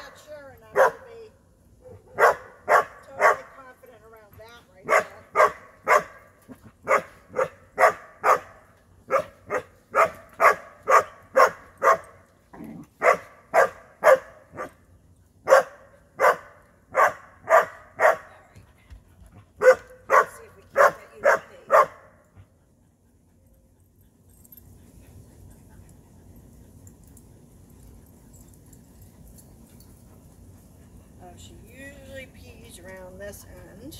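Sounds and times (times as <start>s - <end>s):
dog barking: 0.8s - 1.0s, 1.8s - 3.5s, 4.9s - 6.2s, 6.8s - 12.1s, 13.0s - 14.7s, 15.5s - 18.3s, 19.6s - 22.1s.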